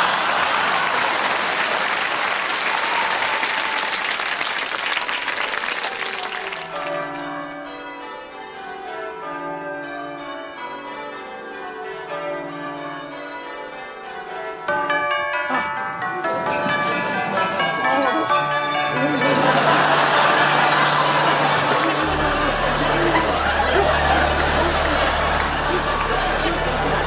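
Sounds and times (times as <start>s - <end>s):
audience applause: 0.0s - 7.5s, 16.7s - 27.0s
ringing bell-like music: 5.9s - 27.0s.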